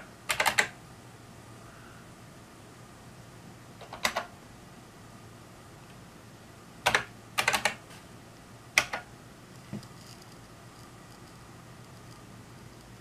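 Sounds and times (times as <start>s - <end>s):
keyboard keys typing: 0.0s - 0.8s, 3.8s - 4.3s, 6.8s - 7.8s, 8.8s - 9.1s.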